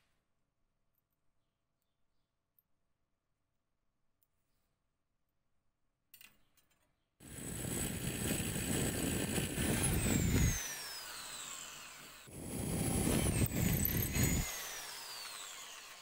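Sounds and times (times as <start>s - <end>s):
electric drill boring into steel: 7.2s - 16.0s.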